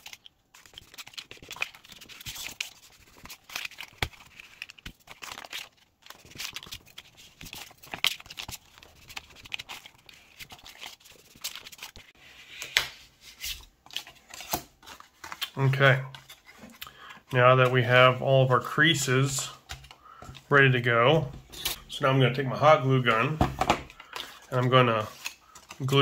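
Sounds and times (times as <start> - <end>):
paper rustling and crackling: 0.0 - 16.8.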